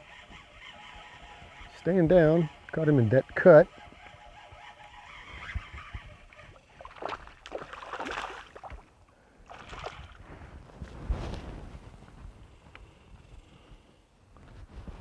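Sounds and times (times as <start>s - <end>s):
fish splashing at the surface: 6.8s - 8.9s, 9.5s - 10.2s.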